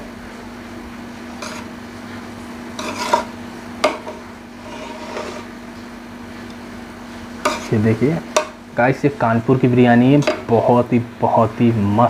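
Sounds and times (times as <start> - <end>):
steady low hum: 0.0 - 12.0
spoon scraping rice in pot: 1.4 - 1.8, 2.7 - 5.5, 7.4 - 8.6.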